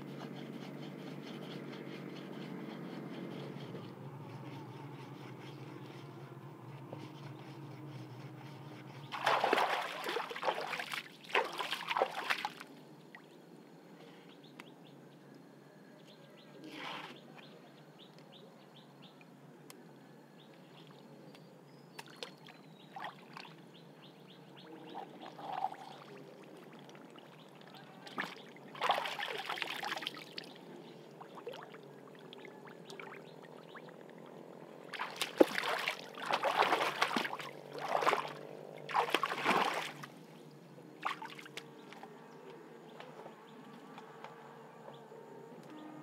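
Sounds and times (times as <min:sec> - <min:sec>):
splashing in shallow water: 0:09.1 - 0:12.7, 0:24.9 - 0:30.5, 0:34.9 - 0:40.3, 0:41.0 - 0:42.0.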